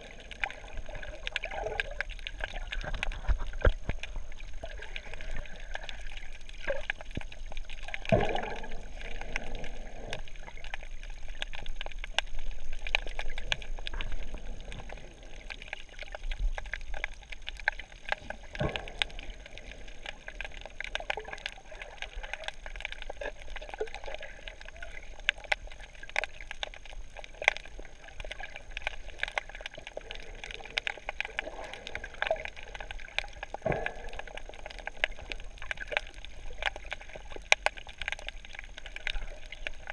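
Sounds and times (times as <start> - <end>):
bubbles gurgling: 0.0 - 39.9
faint crackling clicks: 0.0 - 39.9
diver breathing underwater: 8.2 - 10.5.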